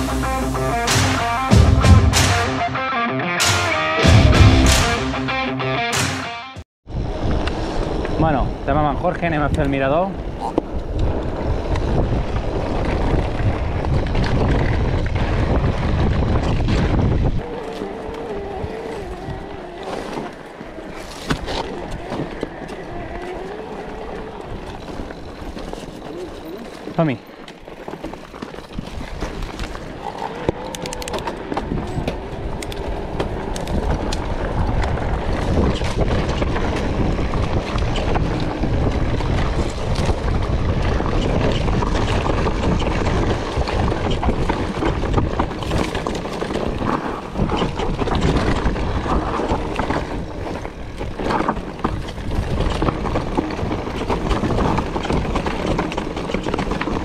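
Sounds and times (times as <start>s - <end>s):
wind on microphone: 6.9s - 26.7s, 28.6s - 57.0s
bike rattling over bumps: 6.9s - 57.0s
tyres crunching over stones: 12.5s - 57.0s.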